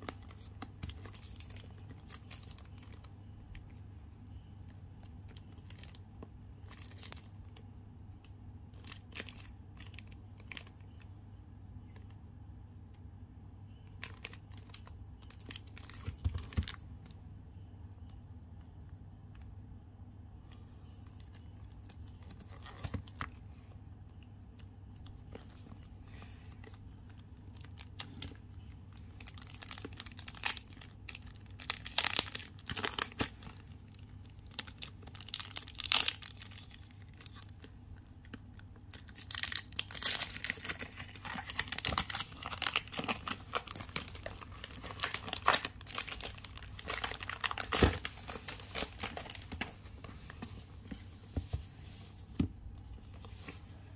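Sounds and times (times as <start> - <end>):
cellophane crinkling and tearing: 0.0 - 4.4, 5.0 - 7.6, 8.7 - 11.0, 13.9 - 16.9, 21.0 - 23.4, 25.0 - 51.0.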